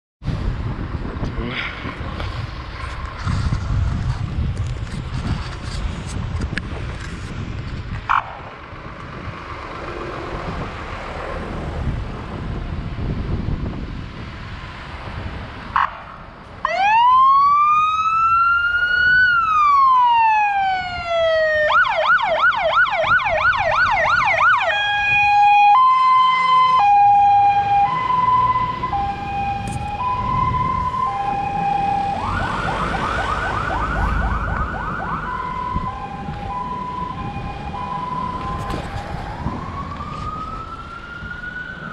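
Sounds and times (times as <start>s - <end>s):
passing traffic: 0.2s - 41.9s
fire engine siren: 16.6s - 41.9s.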